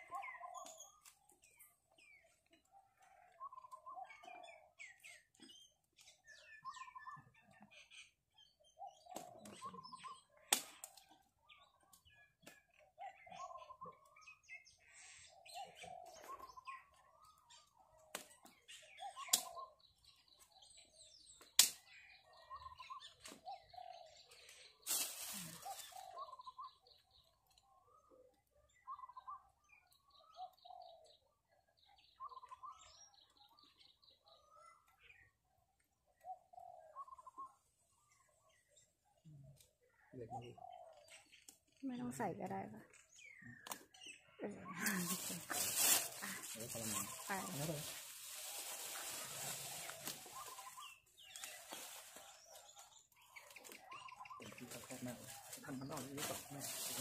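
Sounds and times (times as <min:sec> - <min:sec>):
small birds chirping: 0:00.0 - 0:57.0
dove cooing: 0:15.5 - 0:16.8.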